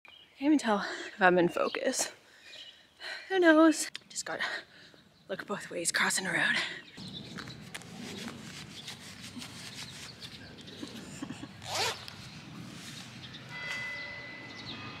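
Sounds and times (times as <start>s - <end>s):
jacket zipper pulled: 7.6s - 13.2s.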